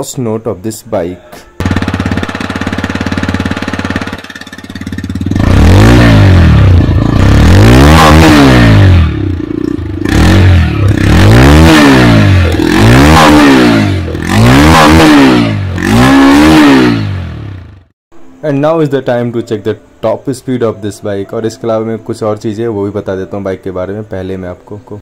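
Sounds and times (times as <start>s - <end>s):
motorcycle engine revving: 1.6s - 17.9s.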